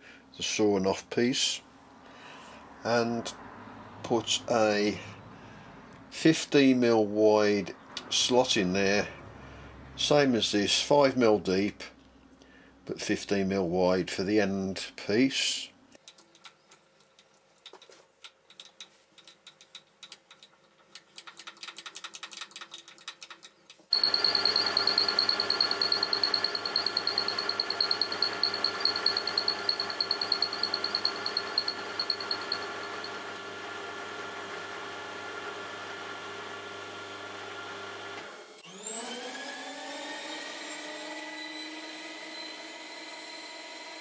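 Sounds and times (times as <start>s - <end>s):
high cutting whine: 23.9s - 33.6s
motor speeding up: 23.9s - 36.6s
milling machine running: 23.9s - 39.0s.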